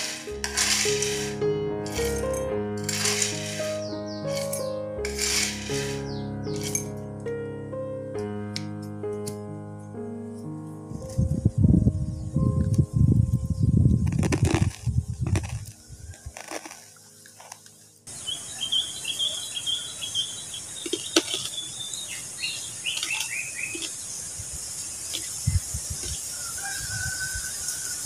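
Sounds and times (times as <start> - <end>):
birds chirping: 3.6 - 5.0, 5.7 - 6.4, 15.8 - 26.3.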